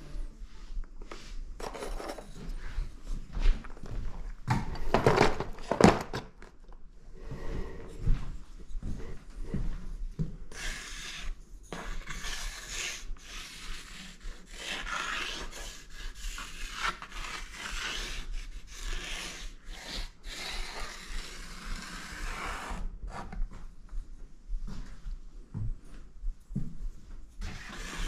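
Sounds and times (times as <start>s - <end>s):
charcoal scratching on paper: 10.5s - 22.8s, 27.4s - 28.0s.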